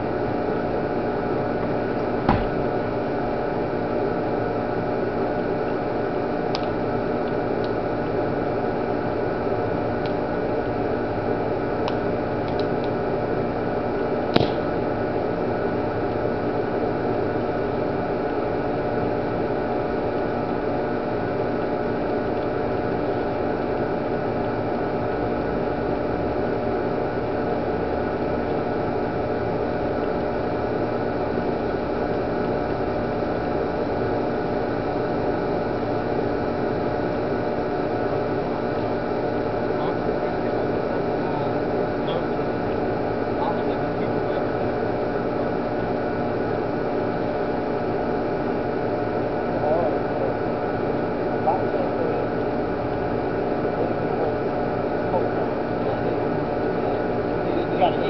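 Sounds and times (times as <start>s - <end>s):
droning hum with hiss: 0.0s - 58.0s
sharp click: 14.3s - 14.7s
plastic bottle venting pop: 14.3s - 14.8s.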